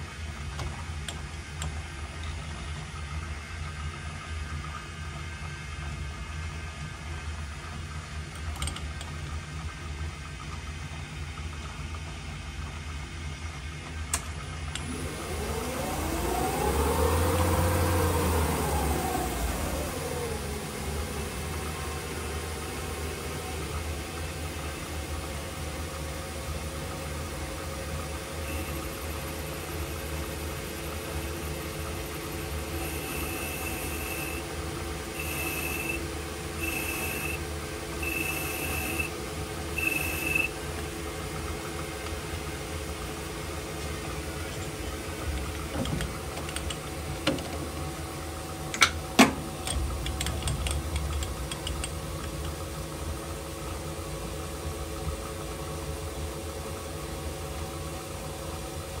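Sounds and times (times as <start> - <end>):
sharp metallic clicks and knocks: 8.4 - 9.2, 45.3 - 47.6, 48.7 - 52.6
metal lathe humming: 30.6 - 34.6.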